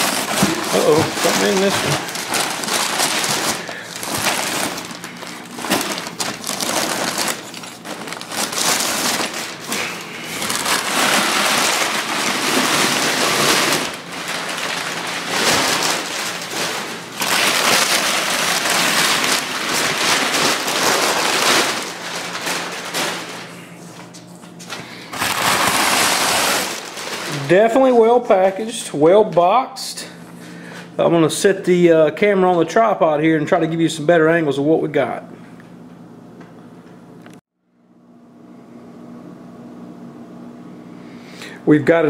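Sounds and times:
paper and bubble wrap rustling: 0:00.0 - 0:28.6.

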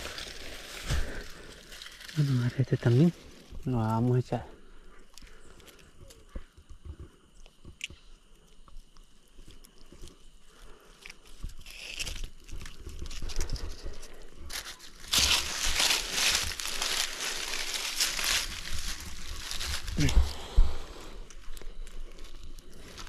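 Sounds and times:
crunching and rustling: 0:00.0 - 0:04.2, 0:04.9 - 0:23.0.

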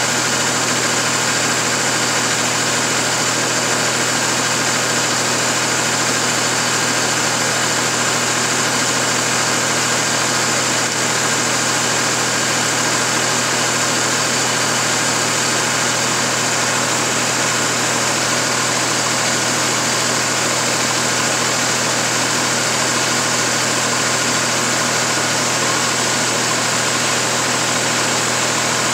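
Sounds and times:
steady machine drone: 0:00.0 - 0:28.9.

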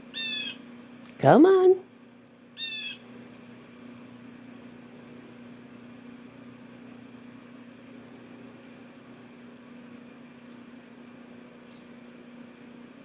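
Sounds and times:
steady low hum: 0:00.0 - 0:13.0
blue jay call: 0:00.1 - 0:00.6, 0:02.6 - 0:03.0.

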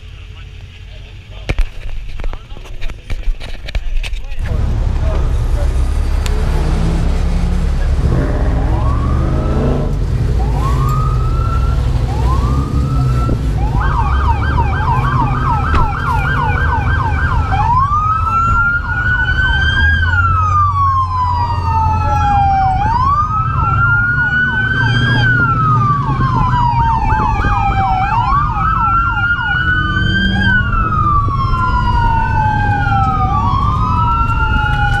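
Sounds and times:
siren wail rising and falling: 0:04.5 - 0:35.0
police siren whoops and yelp: 0:08.6 - 0:09.8, 0:10.4 - 0:35.0.

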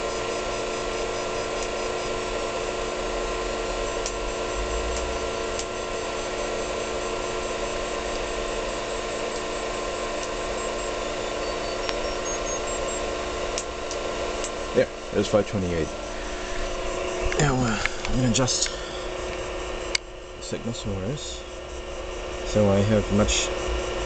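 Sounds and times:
electrical buzz with held tones: 0:00.0 - 0:24.0.

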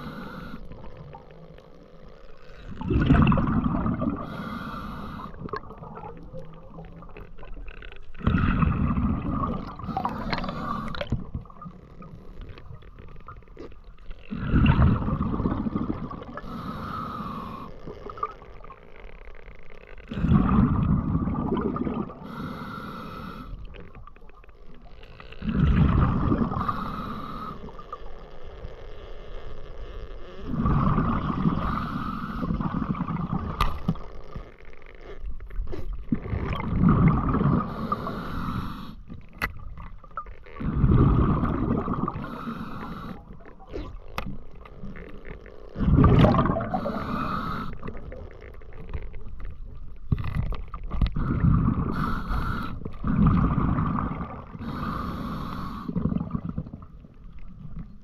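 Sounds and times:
scuba regulator inhale hiss: 0:00.0 - 0:00.8, 0:04.1 - 0:05.5, 0:09.8 - 0:11.0, 0:16.4 - 0:17.8, 0:22.2 - 0:23.6, 0:26.5 - 0:27.8, 0:31.5 - 0:32.7, 0:37.6 - 0:39.1, 0:42.1 - 0:43.4, 0:46.6 - 0:48.0, 0:51.2 - 0:53.0, 0:54.6 - 0:56.0
exhaled air bubbling underwater: 0:00.0 - 0:58.0.

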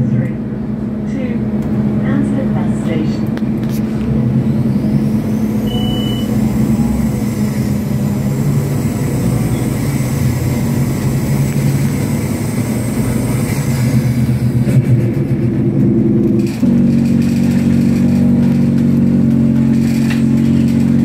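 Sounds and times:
bus diesel engine running: 0:00.0 - 0:21.0
short high beep: 0:05.6 - 0:06.5.

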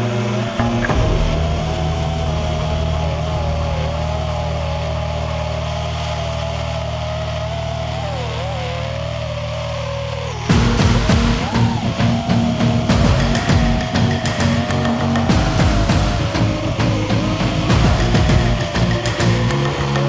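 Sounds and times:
drone propellers whining: 0:00.0 - 0:20.0
steady low hum: 0:00.0 - 0:20.0.

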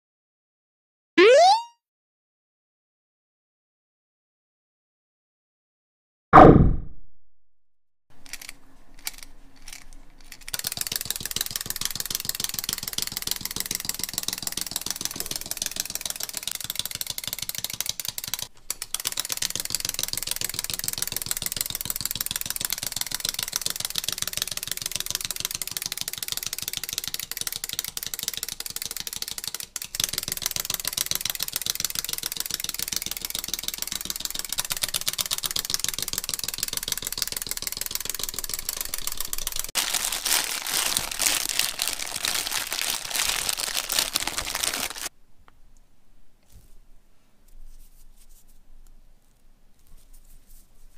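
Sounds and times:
wind-up toy clockwork clicking: 0:08.2 - 0:39.7.

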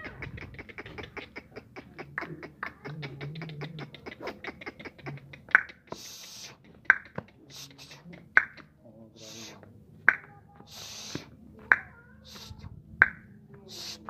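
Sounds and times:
animal clicking calls: 0:00.0 - 0:14.0.

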